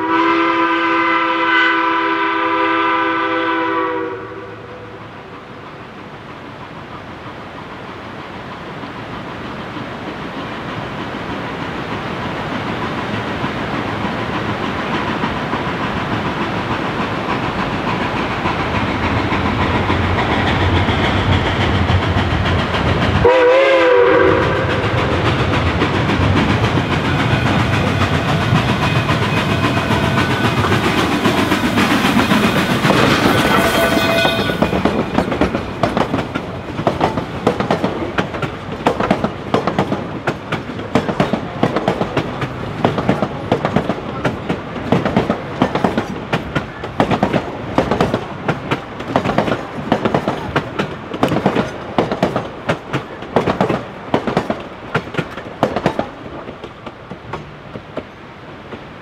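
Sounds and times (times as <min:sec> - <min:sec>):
train whistle blast: 0:00.0 - 0:05.0, 0:23.2 - 0:25.0, 0:32.1 - 0:34.9
steam train running: 0:00.0 - 0:59.0
wheels clacking over rail joints: 0:06.2 - 0:59.0.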